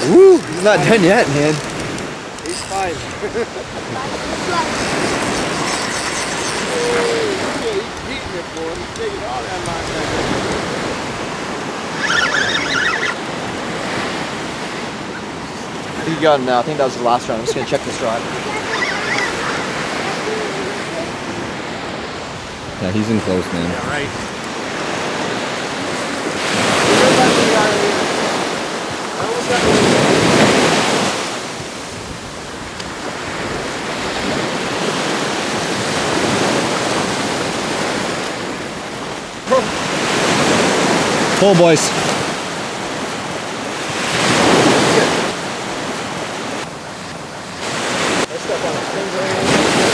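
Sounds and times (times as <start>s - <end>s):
surf washing onto beach: 0.0s - 49.9s.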